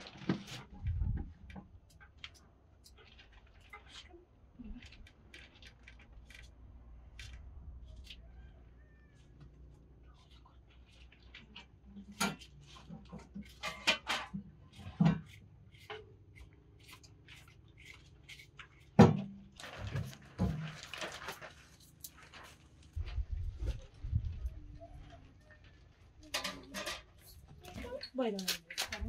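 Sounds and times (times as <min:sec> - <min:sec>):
rustling: 0:19.5 - 0:26.3.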